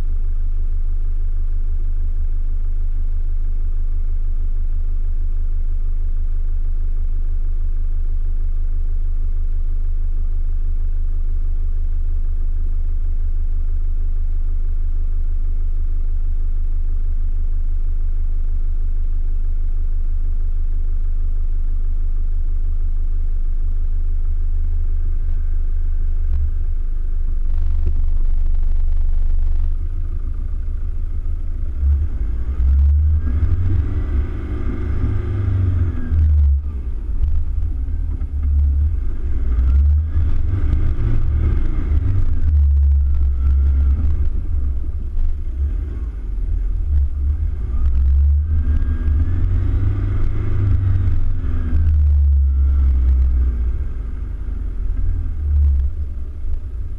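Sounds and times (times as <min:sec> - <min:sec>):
heavy low rumble: 0:00.0 - 0:56.9
engine revving: 0:27.5 - 0:56.9.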